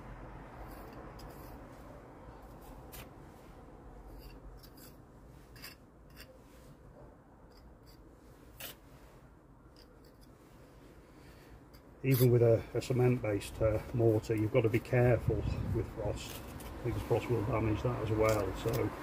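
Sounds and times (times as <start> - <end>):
pointing tool scraping mortar: 0.6 - 1.6, 4.1 - 6.4, 11.7 - 12.4, 18.0 - 18.9.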